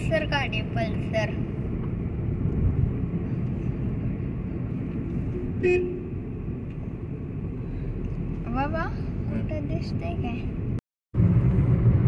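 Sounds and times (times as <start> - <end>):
vehicle road rumble: 0.0 - 12.0
vehicle horn toot: 5.4 - 6.2.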